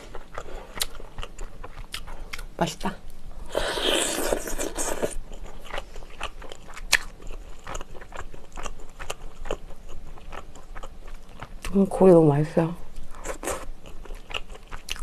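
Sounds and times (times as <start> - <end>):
chewing clicks and crunches: 13.4 - 15.0.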